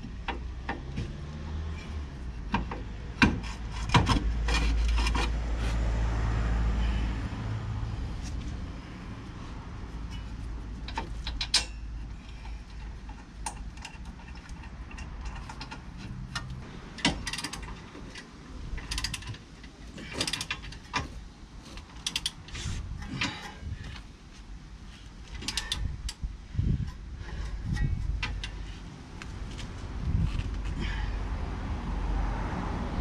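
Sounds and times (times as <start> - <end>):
ratchet wrench clicking: 18.8 - 19.4, 22.0 - 22.4.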